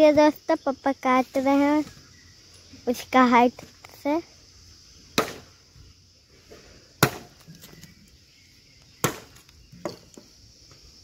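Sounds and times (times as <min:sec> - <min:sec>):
high insect drone: 0:00.0 - 0:11.0
axe chopping bamboo: 0:05.2 - 0:05.5, 0:07.0 - 0:07.4, 0:09.0 - 0:10.0.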